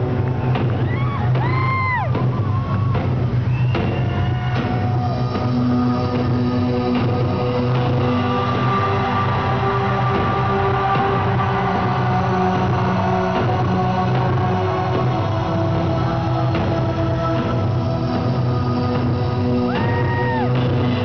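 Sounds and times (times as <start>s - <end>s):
live rock concert music: 0.0s - 21.0s
shrill whistle-like tone: 3.5s - 4.4s.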